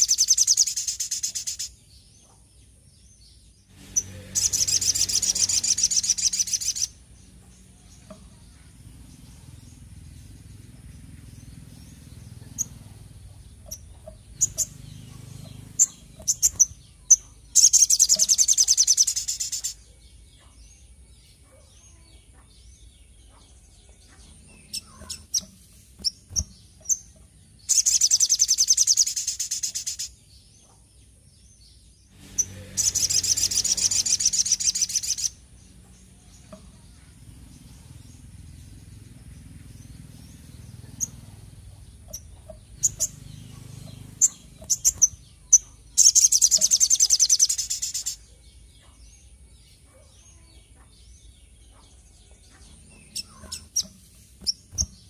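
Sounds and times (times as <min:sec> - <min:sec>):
bird trilling: 0:00.0 - 0:01.8, 0:03.8 - 0:07.0, 0:11.9 - 0:19.8, 0:24.5 - 0:30.2, 0:32.3 - 0:35.4, 0:40.4 - 0:48.3, 0:52.9 - 0:55.0
bird chirping: 0:00.0 - 0:55.0.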